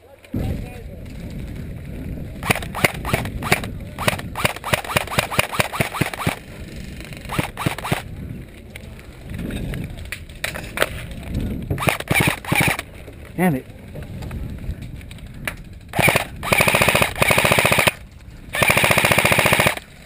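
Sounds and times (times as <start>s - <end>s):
airsoft rifle shots: 2.4s - 6.4s, 7.3s - 8.1s, 11.8s - 12.8s, 15.9s - 18.0s, 18.6s - 19.8s.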